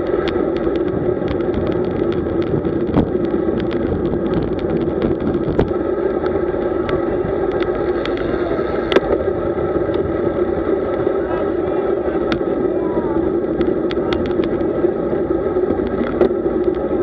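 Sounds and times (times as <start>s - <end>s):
small clicks and rattles: 0.0s - 9.2s, 13.5s - 14.7s, 15.7s - 17.0s
bicycle tyre noise: 0.0s - 17.0s.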